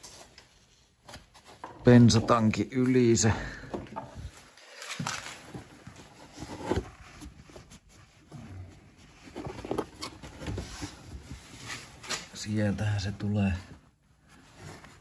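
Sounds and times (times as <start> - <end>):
cable rustling and scraping on plastic: 4.1 - 12.4.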